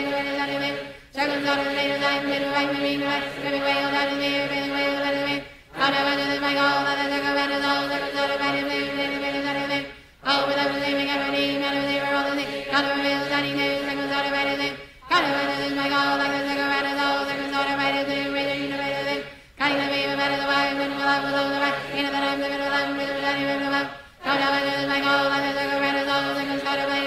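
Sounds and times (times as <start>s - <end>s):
voices chanting rapidly: 0.0s - 27.0s.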